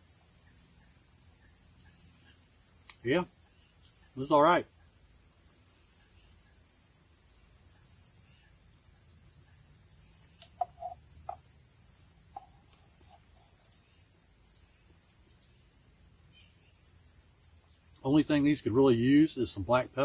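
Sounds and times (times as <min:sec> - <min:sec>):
insects droning: 0:00.0 - 0:20.0
low clucking notes: 0:10.4 - 0:11.4.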